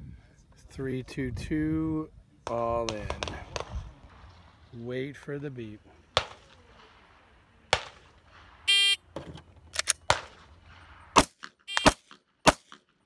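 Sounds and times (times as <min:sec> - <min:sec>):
pistol shot: 0:02.9 - 0:04.5, 0:06.1 - 0:07.0, 0:07.7 - 0:08.6, 0:09.8 - 0:13.0
shot timer beep: 0:11.7 - 0:12.0.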